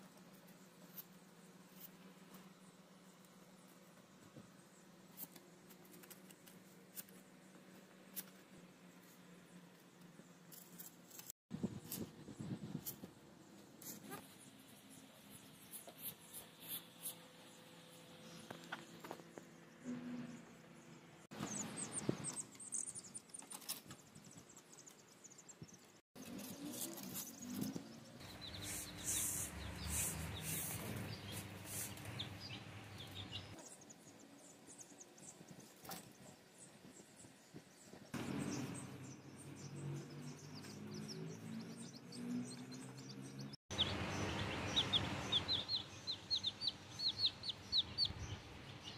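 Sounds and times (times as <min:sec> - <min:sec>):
baby chicks peeping: 0:26.4 - 0:33.9, 0:38.4 - 0:48.9.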